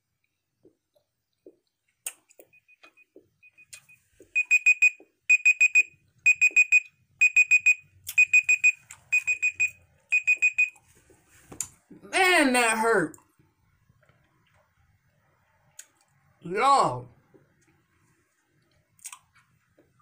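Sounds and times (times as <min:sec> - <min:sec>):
phone timer alarm beeps: 0:02.5 - 0:10.8.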